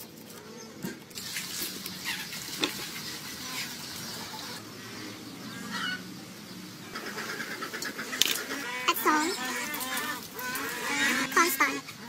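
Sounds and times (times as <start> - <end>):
bird calling: 6.8 - 12.0.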